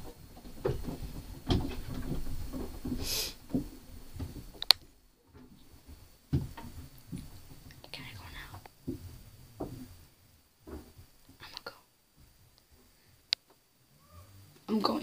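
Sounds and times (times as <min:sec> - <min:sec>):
soft rustling and light knocks: 0:00.0 - 0:13.6
short hiss: 0:02.9 - 0:03.5.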